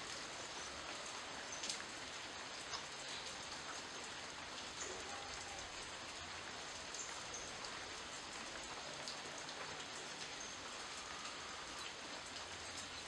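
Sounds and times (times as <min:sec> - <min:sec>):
rain on leaves: 0:00.0 - 0:13.0.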